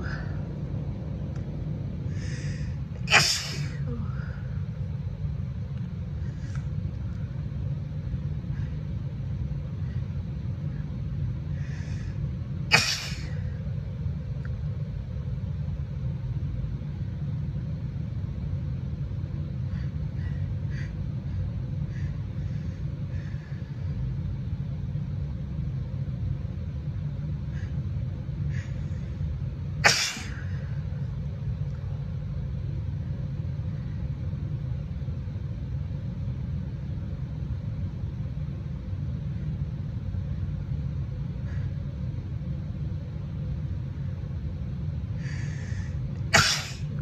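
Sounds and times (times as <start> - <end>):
low rumble: 0.0 - 12.7
woman sneezing: 3.0 - 4.4, 12.7 - 13.5, 29.8 - 30.5, 46.3 - 46.9.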